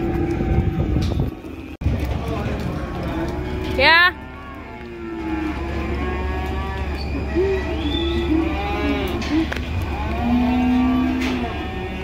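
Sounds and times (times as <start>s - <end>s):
cattle mooing: 2.8s - 12.0s.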